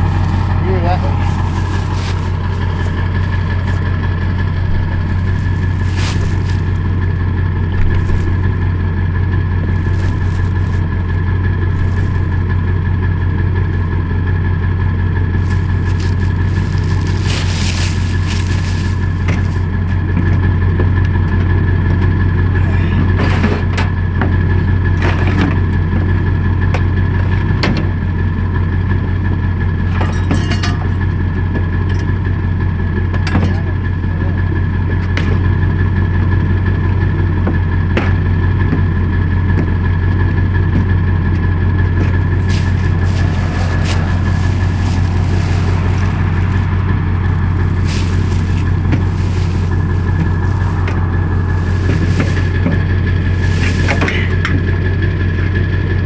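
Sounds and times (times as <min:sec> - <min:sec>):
knocks and scrapes in truck bed: 0:00.0 - 0:08.6, 0:09.6 - 0:12.6, 0:15.4 - 0:21.4, 0:22.7 - 0:24.4, 0:25.0 - 0:25.8, 0:37.4 - 0:55.0
pickup truck engine idling: 0:00.0 - 0:56.0.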